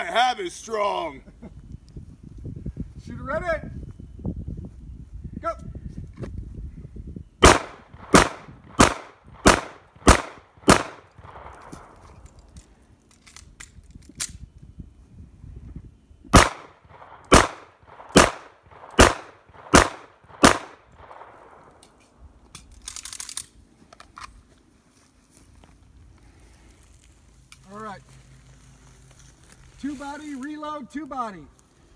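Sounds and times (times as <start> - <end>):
pistol shots: 7.4 - 12.0, 16.3 - 21.7.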